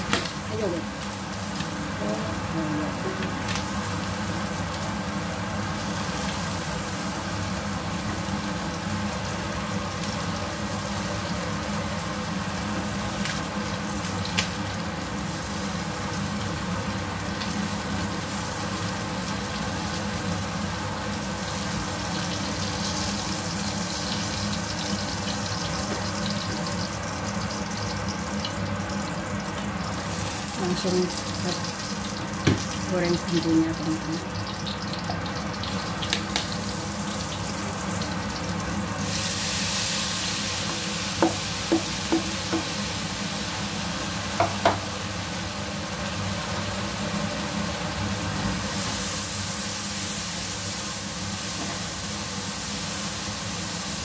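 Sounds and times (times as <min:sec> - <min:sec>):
range hood fan hum: 0:00.0 - 0:54.0
squid sizzling in oil: 0:00.0 - 0:54.0.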